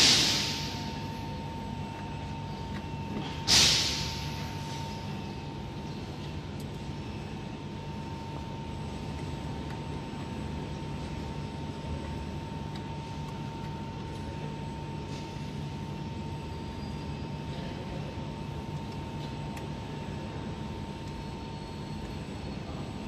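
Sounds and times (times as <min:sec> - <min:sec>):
compressed air hiss: 0:00.0 - 0:00.9, 0:03.4 - 0:04.8
laser cutting machine hum: 0:00.0 - 0:23.0.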